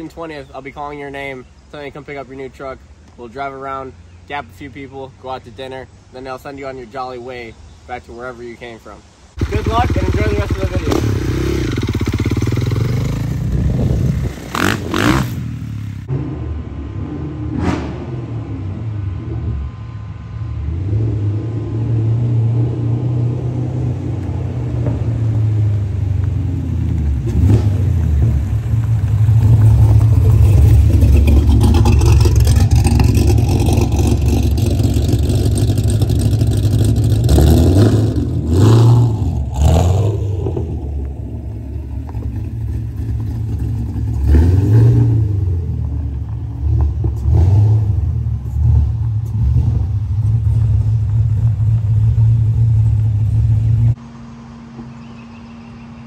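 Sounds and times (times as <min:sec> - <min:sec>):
car engine revving: 0:09.4 - 0:54.0.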